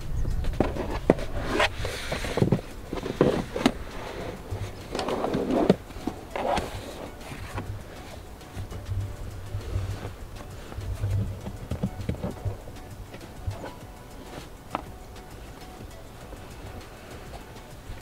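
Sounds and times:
rubber floor liner scraping: 0:00.6 - 0:14.9.

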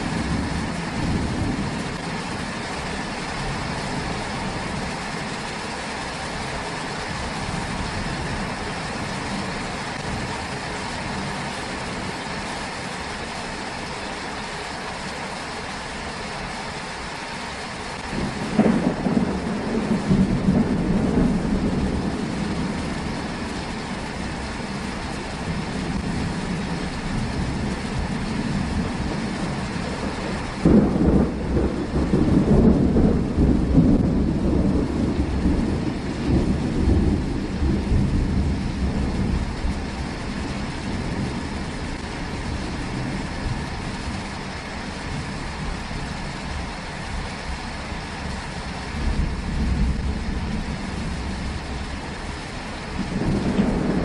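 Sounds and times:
steady rain: 0:00.0 - 0:54.0
thunder rolling: 0:18.0 - 0:44.2, 0:52.8 - 0:54.0.

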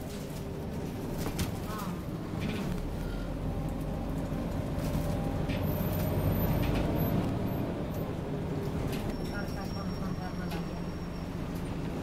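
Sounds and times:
bus engine rumble from inside: 0:00.0 - 0:12.0.

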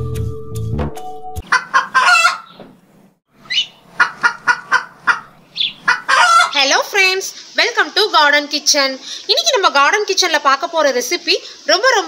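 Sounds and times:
chickens clucking: 0:01.4 - 0:02.7, 0:03.4 - 0:06.8.

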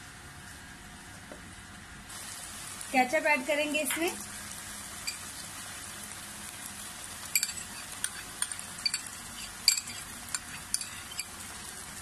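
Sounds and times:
vegetables sizzling in frying pan: 0:02.1 - 0:12.0.

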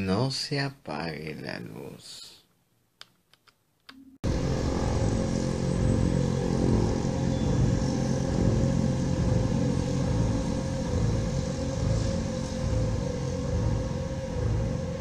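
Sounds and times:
dark ambient drone: 0:04.2 - 0:15.0.

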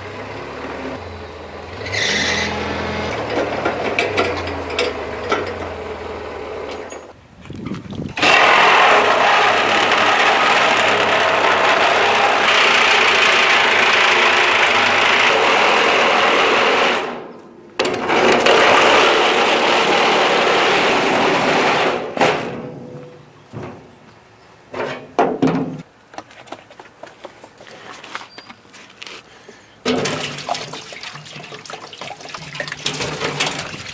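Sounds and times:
metal knocks and clanks: 0:03.1 - 0:05.8
power tool cutting sheet steel: 0:08.2 - 0:17.2, 0:18.0 - 0:22.1.

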